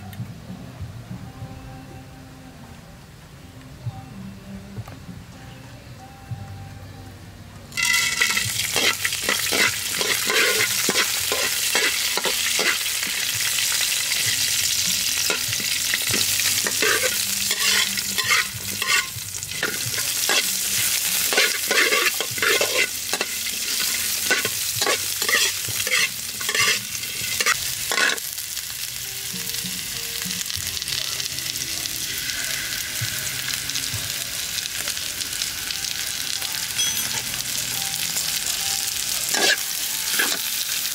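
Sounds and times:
food sizzling in hot oil: 7.7s - 40.9s
metal spatula scraping pan: 7.8s - 13.2s, 15.2s - 28.2s, 39.3s - 40.4s.

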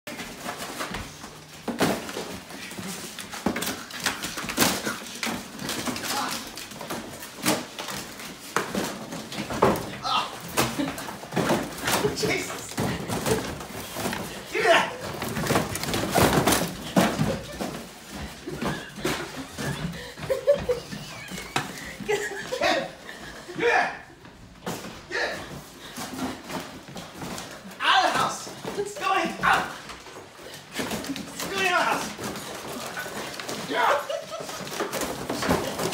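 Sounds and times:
person chuckling: 10.2s - 13.6s, 17.0s - 23.6s, 33.8s - 35.9s.

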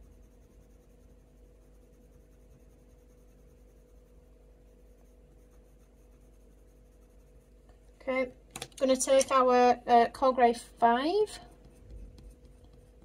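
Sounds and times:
colored pencil scratching on paper: 0.0s - 8.2s, 11.2s - 13.0s
steady low hum: 0.0s - 13.0s.

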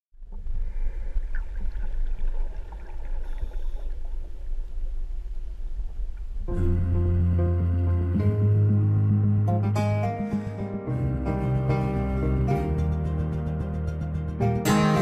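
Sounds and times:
muffled underwater rumble: 0.2s - 9.7s.

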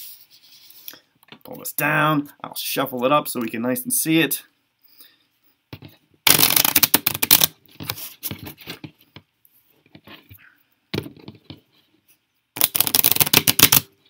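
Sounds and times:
playing cards riffle-shuffled: 5.8s - 9.1s, 12.6s - 13.9s
cards clicking and scraping: 6.3s - 8.8s, 12.6s - 13.9s.

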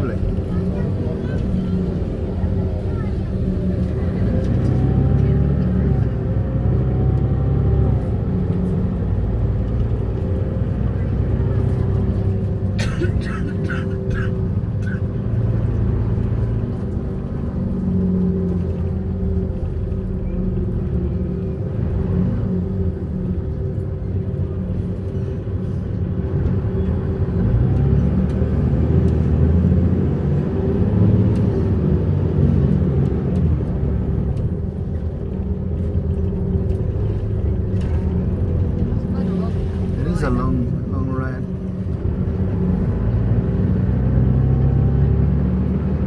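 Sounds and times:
bus engine and road rumble: 0.0s - 46.0s.

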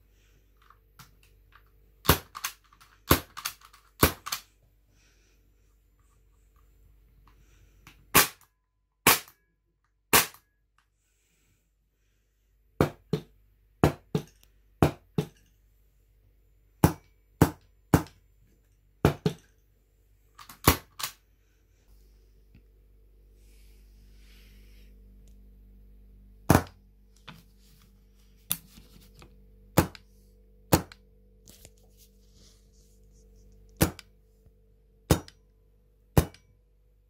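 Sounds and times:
airsoft pistol shots: 8.1s - 8.4s, 9.0s - 9.4s, 10.1s - 10.4s.

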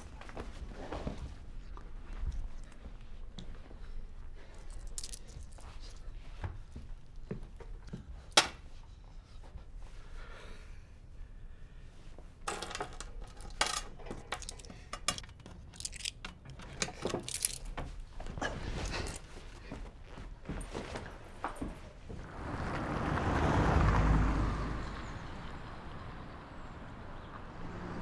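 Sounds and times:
objects being handled: 12.4s - 21.9s.

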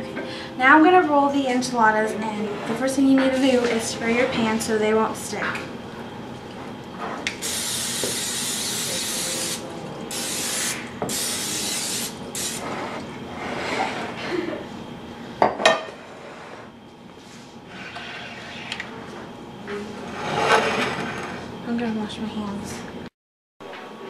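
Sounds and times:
aerosol spray hissing: 7.4s - 12.6s.

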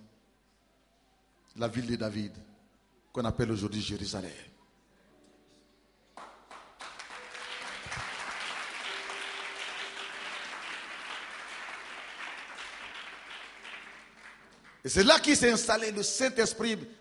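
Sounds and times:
congregation applauding: 6.2s - 15.5s.

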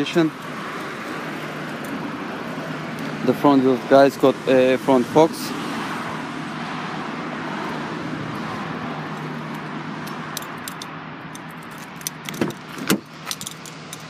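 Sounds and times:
outdoor background noise: 0.0s - 14.0s
car door clicks and clunks: 11.4s - 14.0s.

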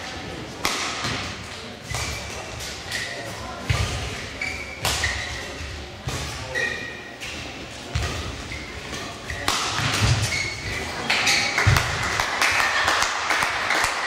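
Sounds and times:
racket hitting shuttlecock: 0.6s - 5.3s, 7.9s - 12.3s
shoe squeaks on court floor: 1.9s - 7.4s, 8.0s - 11.6s.

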